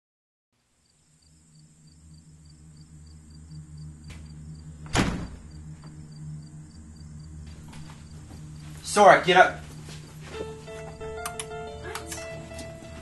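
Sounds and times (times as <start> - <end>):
insects chirping: 0.6 - 13.0
steady low hum: 0.6 - 13.0
loud thud: 4.0 - 5.9.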